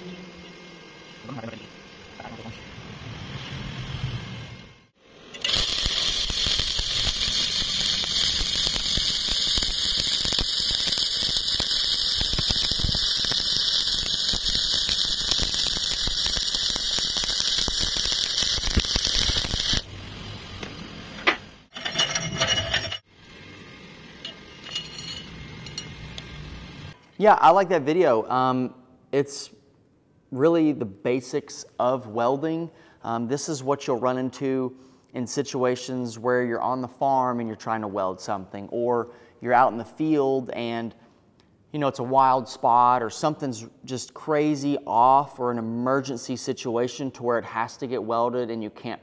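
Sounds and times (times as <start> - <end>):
welding arc crackling and hissing: 5.3 - 19.9.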